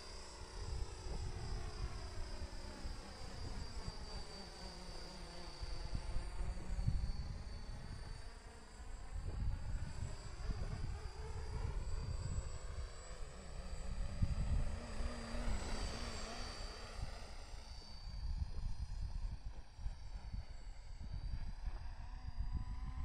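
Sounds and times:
toy helicopter rotor whining: 0.0 - 23.0
wind rumbling on microphone: 9.0 - 12.9, 13.8 - 17.3, 18.0 - 23.0.

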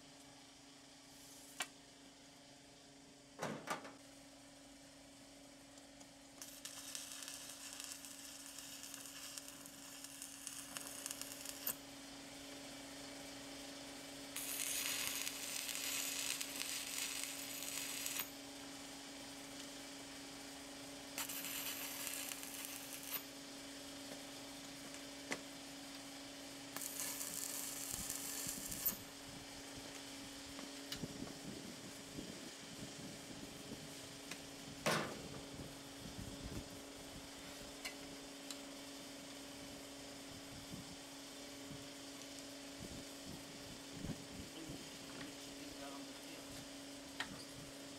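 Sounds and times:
steady low hum: 0.0 - 47.9
welding arc crackling: 6.4 - 12.0, 14.3 - 18.6, 21.2 - 23.5, 26.7 - 29.2.

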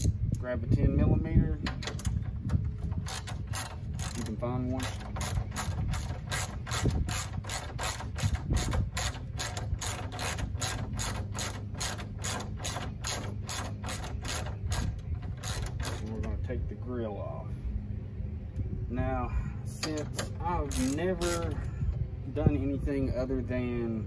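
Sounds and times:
socket ratchet clicking: 2.9 - 16.1, 19.9 - 21.6.

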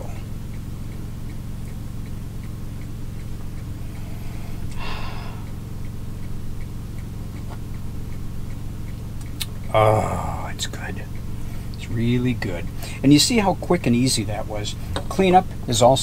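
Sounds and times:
light tick-tock: 0.0 - 16.0
steady low hum: 0.0 - 16.0.

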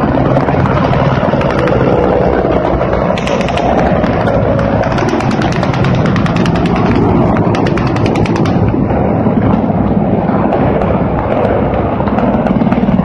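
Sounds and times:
helicopters rumbling: 0.0 - 13.0
automatic gunfire: 3.2 - 8.9.

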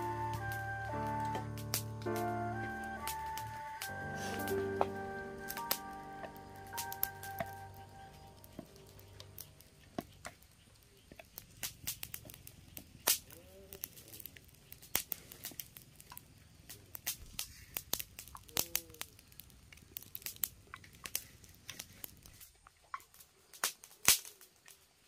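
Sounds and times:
sweet potato skin crackling and tearing: 8.2 - 24.9.

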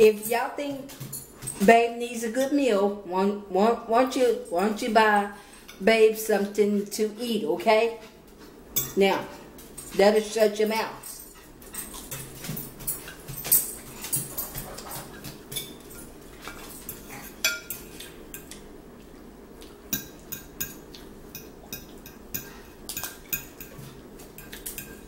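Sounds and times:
forks clinking on plates: 8.7 - 9.2, 10.6 - 18.6, 19.9 - 25.0.

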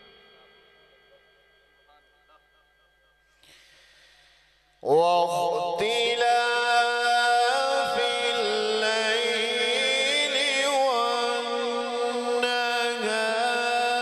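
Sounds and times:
man chanting recitation: 4.8 - 14.0.

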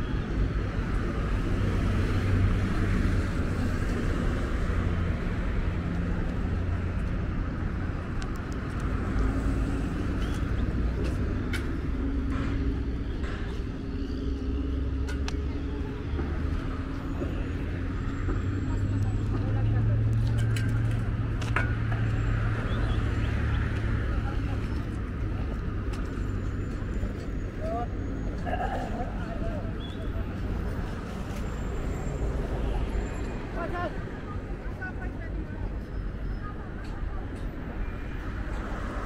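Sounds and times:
rumble of cars on road: 0.0 - 39.0.

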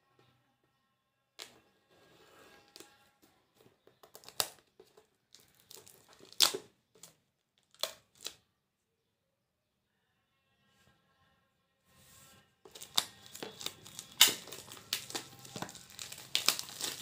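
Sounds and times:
plastic shrink-wrap tearing: 4.0 - 8.4, 12.7 - 17.0.

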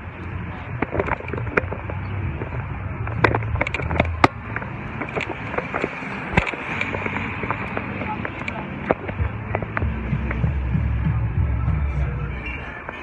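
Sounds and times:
low rumble of street noise: 0.0 - 13.0
phone handling clicks and knocks: 0.8 - 10.4.

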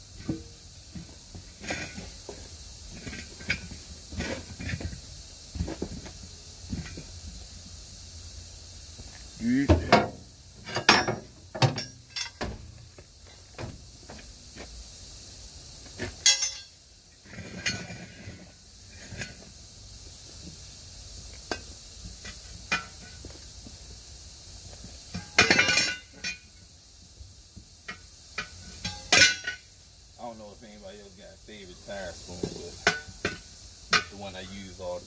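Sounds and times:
tire irons clinking on a rim: 9.1 - 13.4, 16.0 - 19.5, 21.2 - 23.4, 24.9 - 26.7, 27.8 - 30.8, 32.4 - 35.0.

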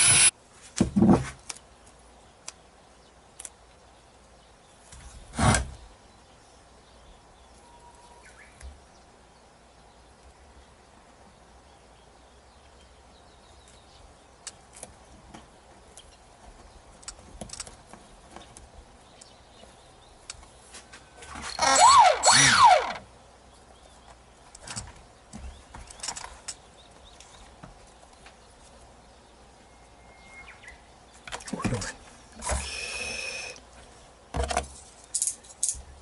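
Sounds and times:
small electric motor whine: 0.0 - 0.3, 21.5 - 23.0, 32.4 - 33.6.

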